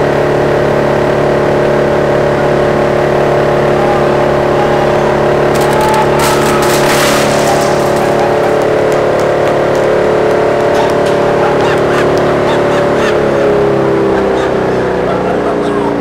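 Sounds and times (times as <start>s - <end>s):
wood chipper running: 0.0s - 16.0s
clicks of debris: 5.5s - 9.2s
cracking and crunching: 5.5s - 10.0s.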